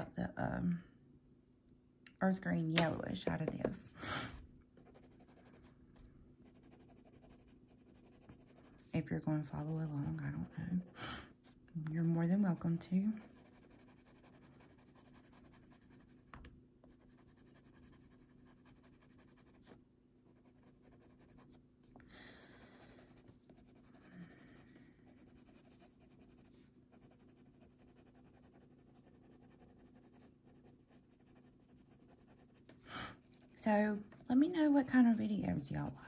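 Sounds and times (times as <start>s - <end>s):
low steady hum: 0.0s - 36.0s
coloured pencil scratching on paper: 4.8s - 5.7s, 6.4s - 21.6s, 22.4s - 33.8s.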